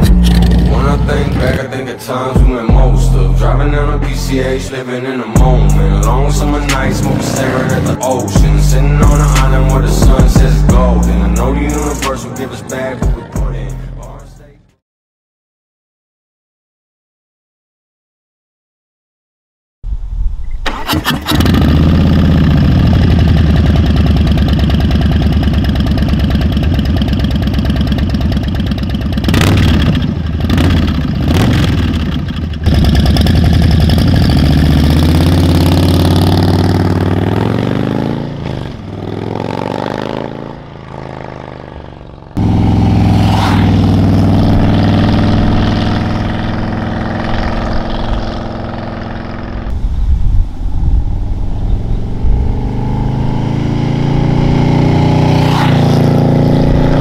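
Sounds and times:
motorcycle riding past: 5.4 - 13.0, 21.4 - 57.0
motorcycle engine idling: 21.4 - 39.5.

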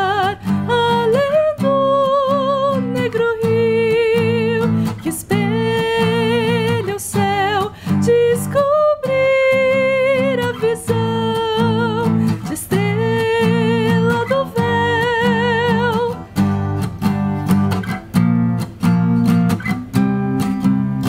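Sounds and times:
woman singing slow melody: 0.0 - 16.3
acoustic guitar: 0.0 - 21.0.

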